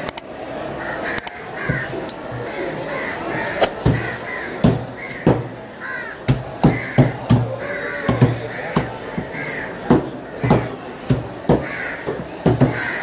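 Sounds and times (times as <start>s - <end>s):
steady high tone: 2.1s - 4.3s
crows cawing: 5.8s - 6.2s.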